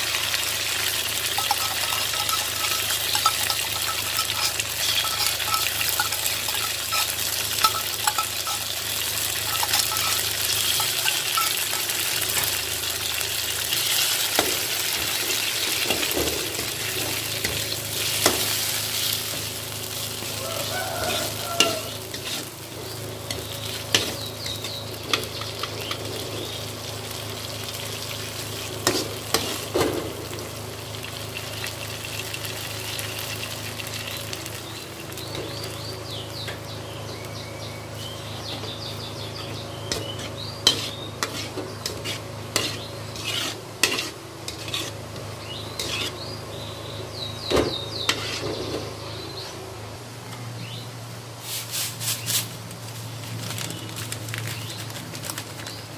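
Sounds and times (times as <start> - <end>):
sauce sizzling in a wok: 0.0 - 48.4
metal spatula scraping pan: 1.2 - 12.5, 20.7 - 22.6, 39.9 - 45.0, 45.8 - 46.2, 48.1 - 48.6.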